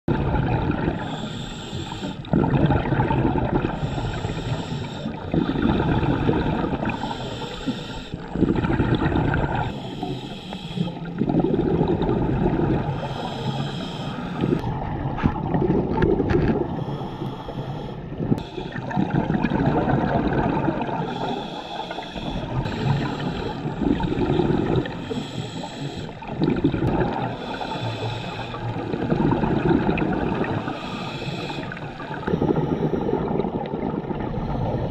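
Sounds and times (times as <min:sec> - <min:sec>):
exhaled bubbles rumbling: 0:00.1 - 0:34.9
regulator hissing inhale: 0:01.0 - 0:02.3, 0:03.7 - 0:08.4, 0:09.5 - 0:11.2, 0:12.8 - 0:14.7, 0:16.6 - 0:18.8, 0:21.0 - 0:26.3, 0:27.2 - 0:29.0, 0:30.4 - 0:33.3, 0:34.3 - 0:34.9.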